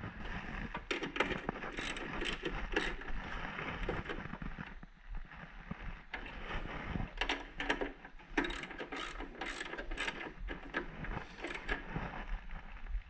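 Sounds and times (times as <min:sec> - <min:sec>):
socket ratchet clicking: 0:01.0 - 0:03.0, 0:08.4 - 0:10.3, 0:11.4 - 0:11.8.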